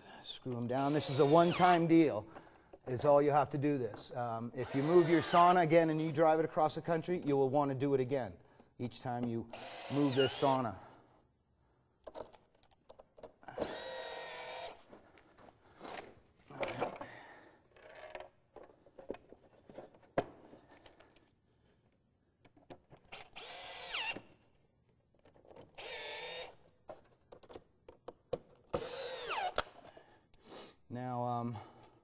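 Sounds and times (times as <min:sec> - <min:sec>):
cordless drill motor whine: 0:00.9 - 0:01.7, 0:04.6 - 0:05.5, 0:09.6 - 0:10.6, 0:13.6 - 0:14.8, 0:23.2 - 0:24.2, 0:25.8 - 0:26.5, 0:28.8 - 0:29.6
handling clicks and knocks: 0:26.9 - 0:28.7.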